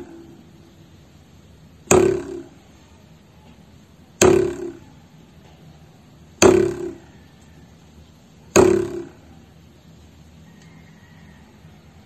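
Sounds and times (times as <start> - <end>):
ruler twanging: 0.0 - 0.3, 1.8 - 2.6, 4.2 - 4.9, 6.4 - 7.1, 8.5 - 9.3.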